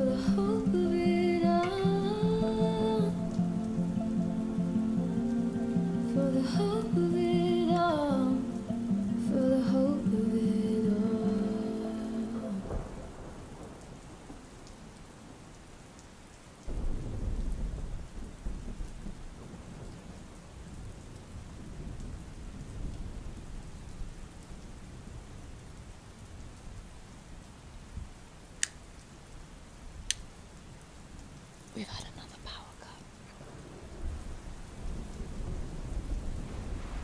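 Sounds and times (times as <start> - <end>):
thunder rumbling: 0.0 - 15.0, 16.7 - 24.3, 33.4 - 37.0
steady rain: 0.0 - 37.0.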